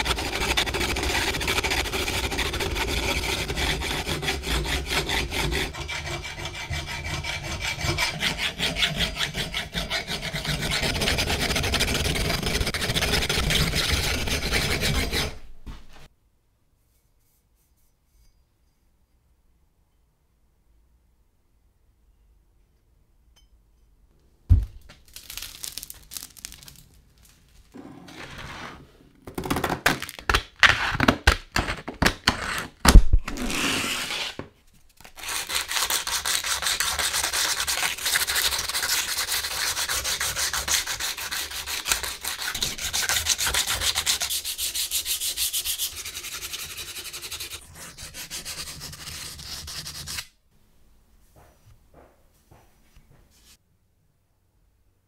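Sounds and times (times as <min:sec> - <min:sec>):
sandpaper scraping on metal: 0:00.0 - 0:15.4, 0:35.1 - 0:50.3.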